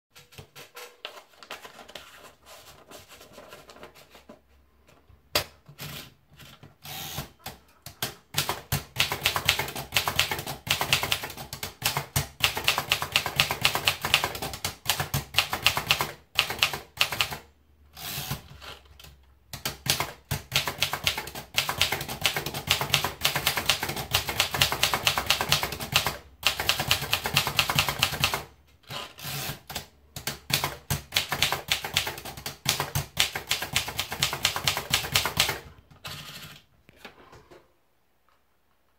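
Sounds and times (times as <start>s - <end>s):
typewriter keys clattering: 8.4s - 17.4s, 19.6s - 28.5s, 29.6s - 36.5s.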